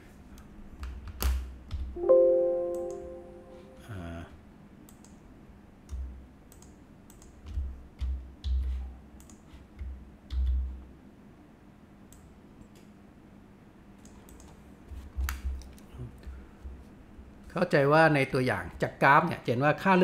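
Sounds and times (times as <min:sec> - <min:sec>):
mouse and keyboard clicks: 0:05.9 - 0:10.7.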